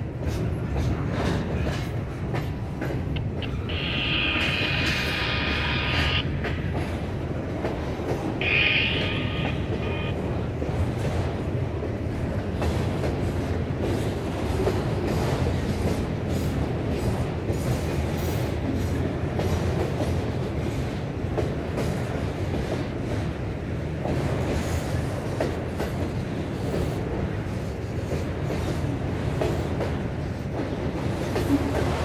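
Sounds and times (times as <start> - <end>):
train wheels rumbling on rail: 0.0 - 32.0.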